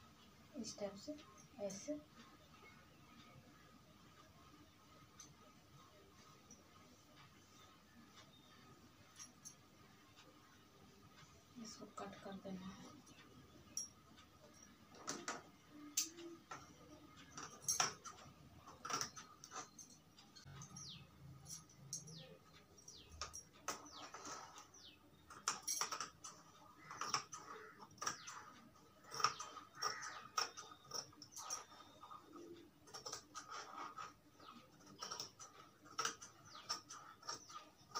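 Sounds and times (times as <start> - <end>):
birds chirping: 7.3 - 9.6, 11.4 - 37.9.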